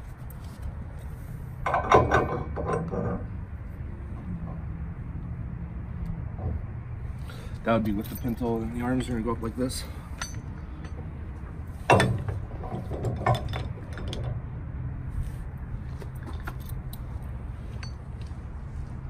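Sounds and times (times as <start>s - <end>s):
steady low rumble: 0.0s - 19.0s
metal clank: 1.6s - 3.4s, 11.8s - 14.4s
light metal clinks: 7.8s - 11.1s, 16.2s - 18.3s.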